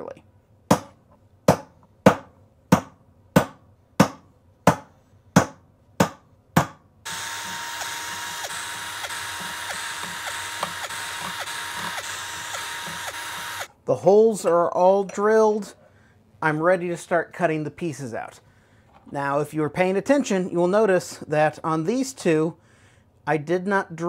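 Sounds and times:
small power drill drilling: 0:07.1 - 0:13.7.

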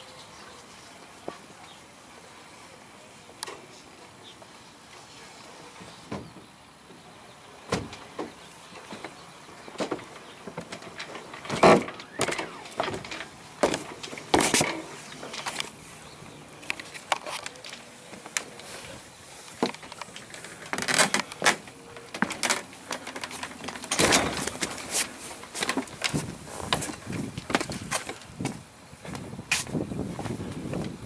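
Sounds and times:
deck gear clicks and knocks: 0:07.7 - 0:15.7, 0:19.6 - 0:28.3
sail canvas rustling: 0:09.9 - 0:28.6.

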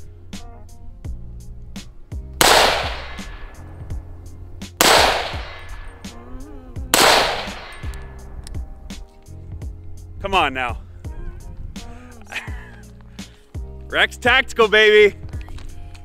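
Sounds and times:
gunshots: 0:02.4 - 0:03.6, 0:04.8 - 0:06.0, 0:06.9 - 0:08.0.

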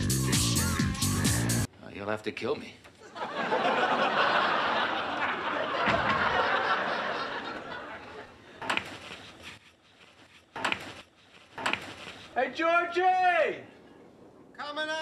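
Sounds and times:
studio audience laughing: 0:03.0 - 0:08.5.

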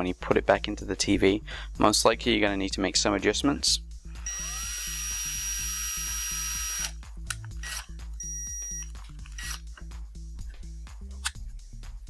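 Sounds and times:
background music with steady beat: 0:00.0 - 0:12.0
electric screwdriver whirring: 0:04.3 - 0:07.0.

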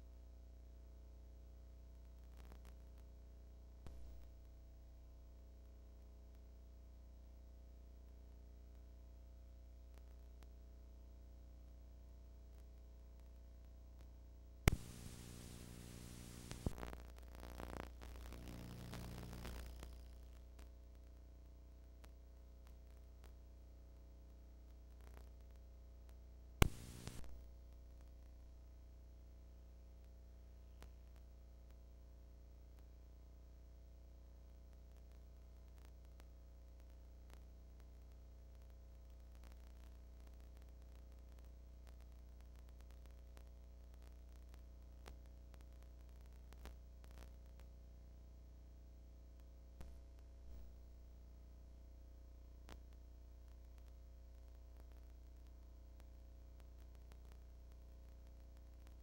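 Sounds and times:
faint electrical hum: 0:00.0 - 0:59.0
tape hiss and static: 0:00.0 - 0:59.0
crackles: 0:01.5 - 0:06.8, 0:07.4 - 0:59.0
sharp click: 0:14.7 - 0:15.4, 0:26.6 - 0:27.3.

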